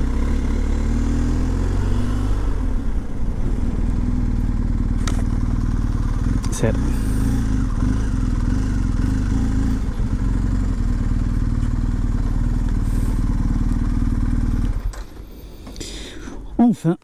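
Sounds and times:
motorcycle engine idling: 3.9 - 15.3.

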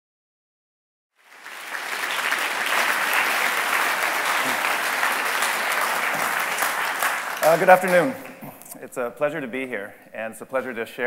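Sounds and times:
audience applause: 1.2 - 8.5.

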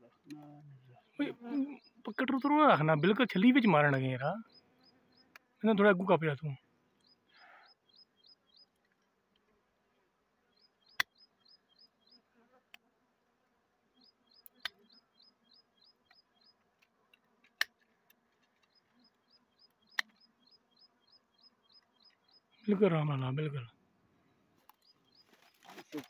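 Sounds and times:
high chirps: 1.2 - 3.8.

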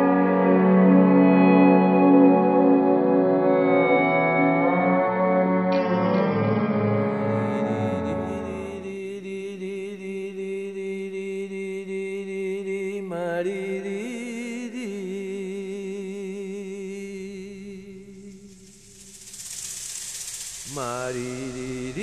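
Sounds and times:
low chanted drone: 5.7 - 9.5.

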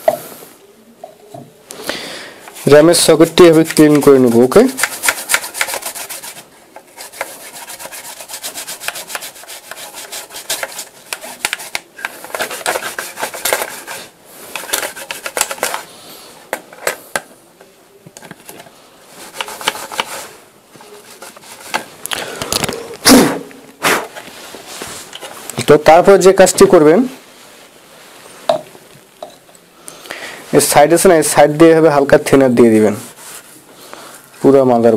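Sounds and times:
brush bristles scratching circuit board: 2.6 - 14.1.

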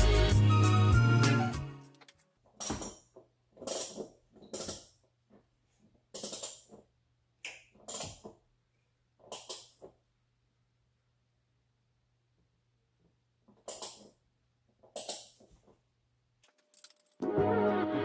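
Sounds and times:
metal tools clinking: 16.4 - 17.2.

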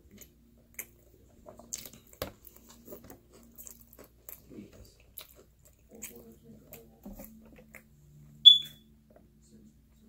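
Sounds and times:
person chewing with mouth smacks: 0.0 - 7.9.

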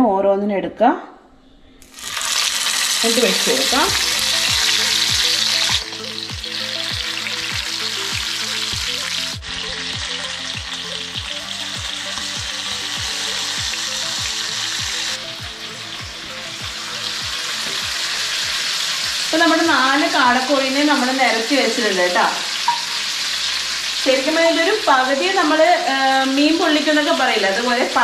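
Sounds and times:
oil sizzling in a pan: 1.8 - 28.0
background music with quick beat: 3.0 - 20.6.

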